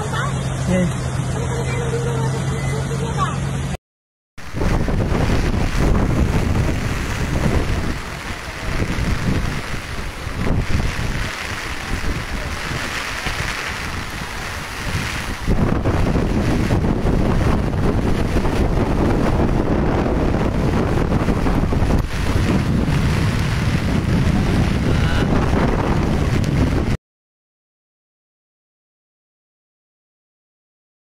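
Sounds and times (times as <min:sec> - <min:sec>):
rushing floodwater: 0:00.0 - 0:03.8, 0:04.4 - 0:27.0
wind buffeting microphone: 0:04.4 - 0:27.0.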